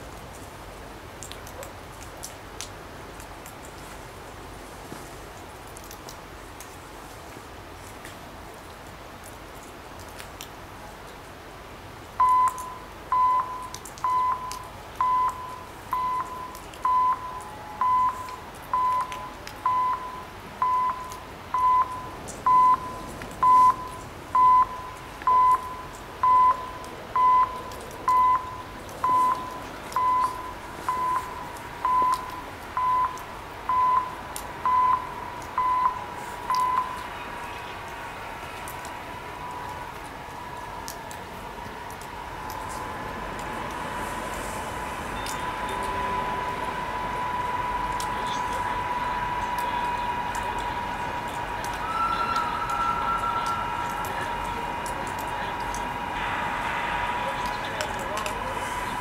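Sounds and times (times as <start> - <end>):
faint steady tone: 12.1 - 59.0
level crossing electronic beeps: 12.2 - 37.2, 45.0 - 56.2.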